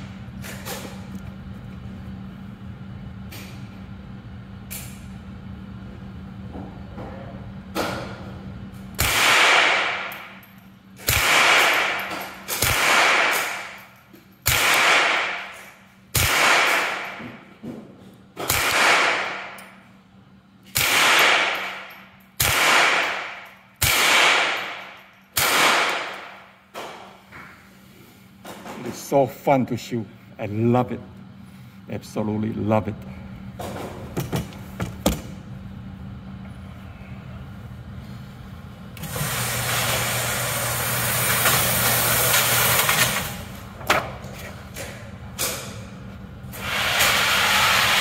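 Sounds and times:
steady low hum: 0.0 - 48.0
rifle shots echoing: 9.0 - 10.1, 11.0 - 13.8, 14.5 - 15.6, 16.2 - 17.2, 18.5 - 19.6, 20.8 - 26.4.

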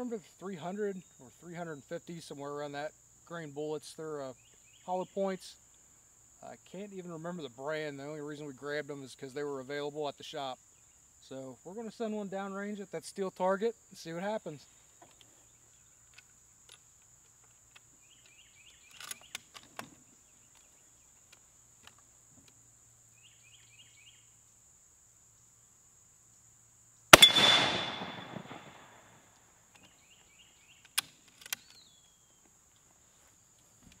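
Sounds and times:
sharp rifle clicks: 27.1 - 29.0
bullet hitting steel target: 27.2 - 28.8
rifle shot: 27.2 - 29.1.

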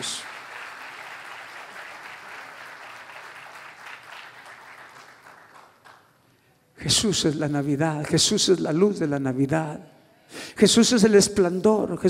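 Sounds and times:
crowd applauding: 0.0 - 6.3.

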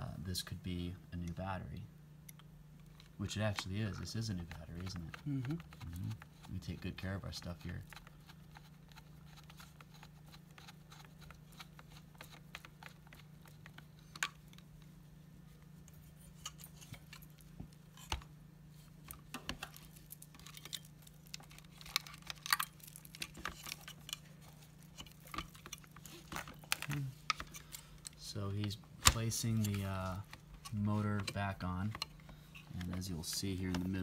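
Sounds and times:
faint low hum: 0.0 - 34.0.

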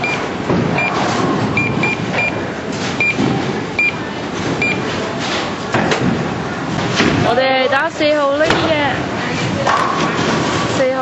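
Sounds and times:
busy bowling alley din: 0.0 - 11.0
short electronic key beeps: 0.8 - 1.0, 4.6 - 4.8.

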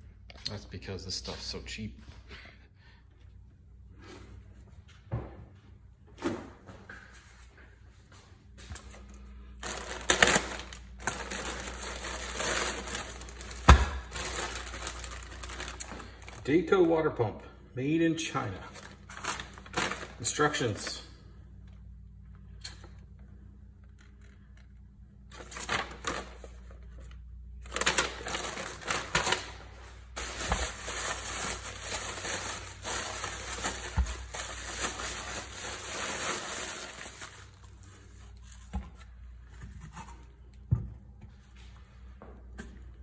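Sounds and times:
packaging crinkling and rustling: 9.6 - 16.8, 18.7 - 20.3, 25.3 - 38.7.

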